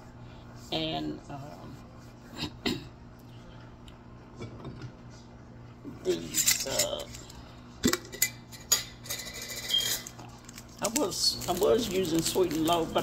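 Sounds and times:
kitchenware being handled: 6.0s - 10.2s.

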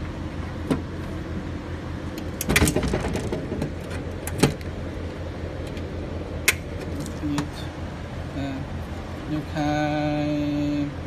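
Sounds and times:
steady low hum: 0.0s - 11.0s
metal latch clicks: 2.2s - 4.7s.

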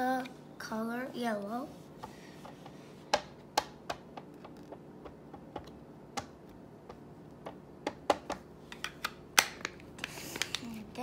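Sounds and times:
ink pad tapping on stamps: 2.4s - 8.5s.

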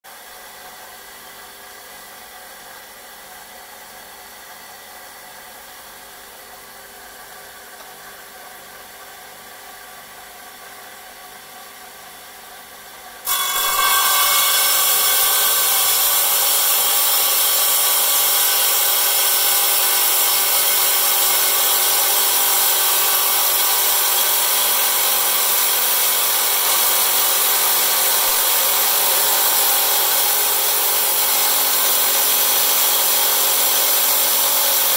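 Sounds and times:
electric stone saw running: 13.2s - 34.9s
saw blade grinding through stone: 13.2s - 34.9s.

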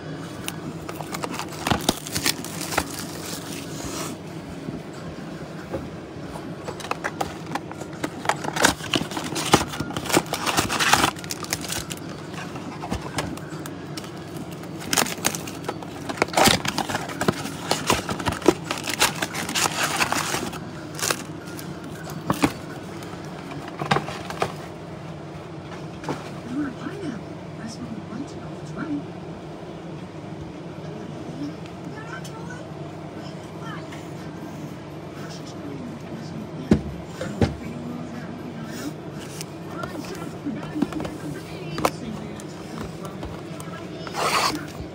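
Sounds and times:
steady low hum: 0.0s - 44.9s
cardboard and wrapping tearing: 0.9s - 4.0s, 8.2s - 12.1s, 14.7s - 21.3s, 44.0s - 44.7s.

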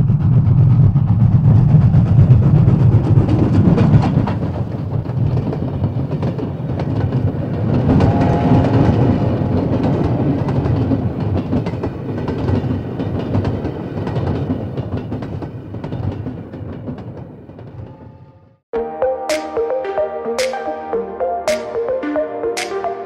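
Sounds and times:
train wheels clacking over rail joints: 0.0s - 18.0s
train rumble: 0.0s - 18.2s.

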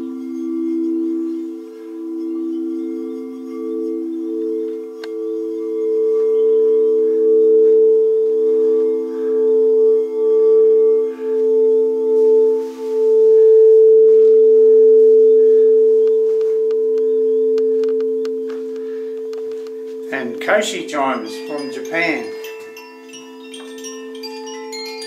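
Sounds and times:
crystal singing bowls ringing: 0.0s - 25.0s.

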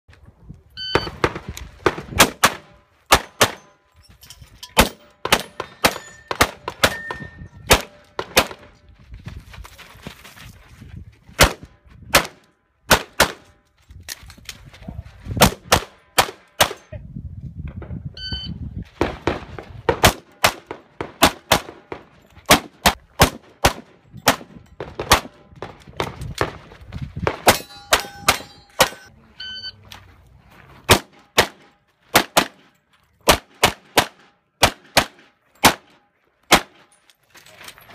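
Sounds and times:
sharp metallic rings: 3.6s - 7.7s, 27.5s - 29.6s.

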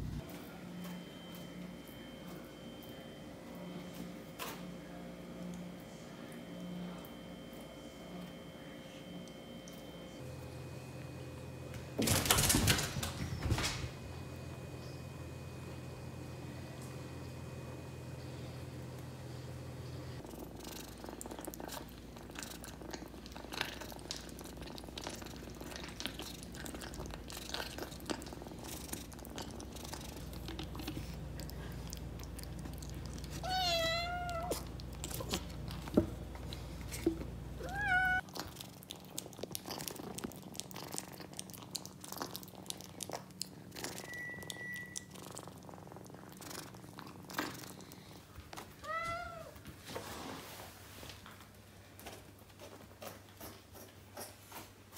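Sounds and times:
kitten meowing: 33.4s - 34.6s, 37.6s - 38.2s.

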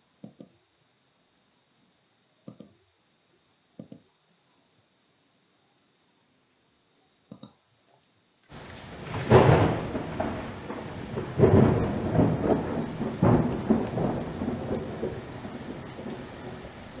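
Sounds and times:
rain hiss: 8.5s - 17.0s
rolling thunder rumbles: 8.5s - 17.0s.

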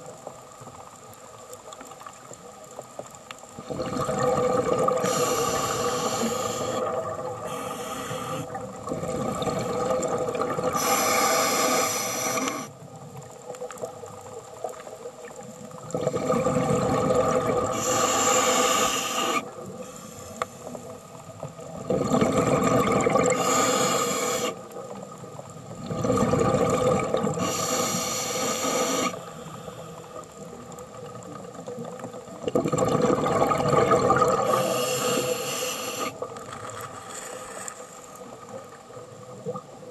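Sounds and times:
diver breathing through regulator: 4.9s - 8.6s, 10.7s - 12.7s, 17.7s - 20.9s, 23.3s - 24.6s, 27.4s - 30.1s, 34.4s - 36.2s.

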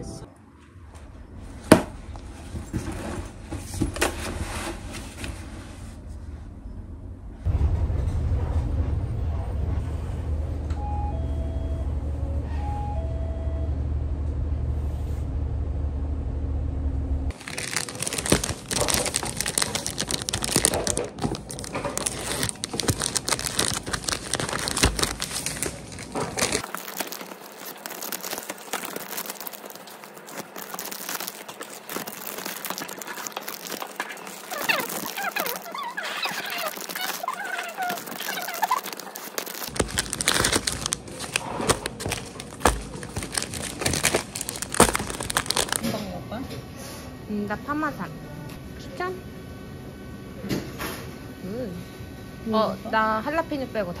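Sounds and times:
bus interior rumble: 6.0s - 17.4s
plastic bag crinkling: 17.3s - 45.8s.

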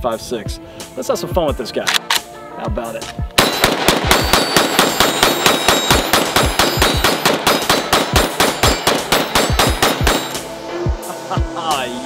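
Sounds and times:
rifle shots: 3.4s - 10.4s
bullets ringing off steel target: 3.4s - 10.5s.

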